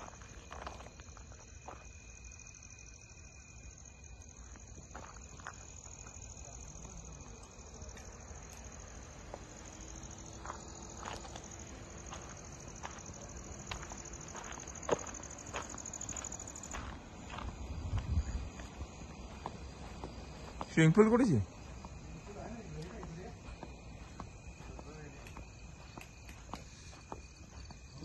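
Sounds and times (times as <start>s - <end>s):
footsteps: 0.0s - 2.1s, 4.2s - 28.0s
crickets chirping: 0.0s - 28.0s
insect tone: 0.0s - 28.0s.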